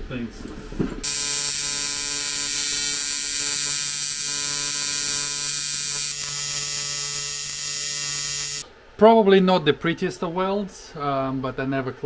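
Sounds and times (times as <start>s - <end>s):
welding arc buzzing: 1.0s - 8.6s.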